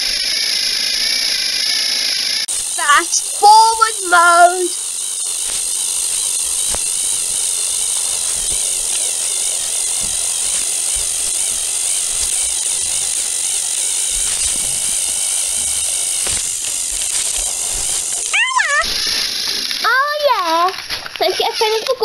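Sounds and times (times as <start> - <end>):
toy train motors whining: 0.0 - 22.0.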